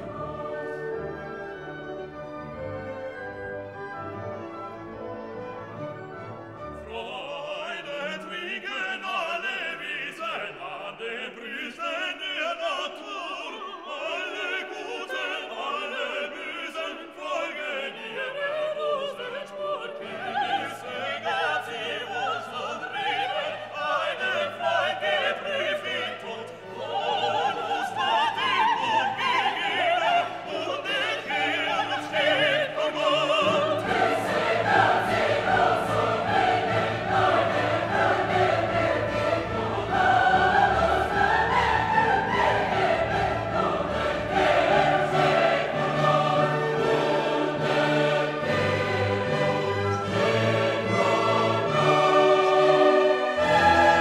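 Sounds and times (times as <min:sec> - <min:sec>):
operatic singing: 0:00.0 - 0:02.4, 0:06.7 - 0:54.0
orchestra playing: 0:00.0 - 0:08.6, 0:26.3 - 0:54.0.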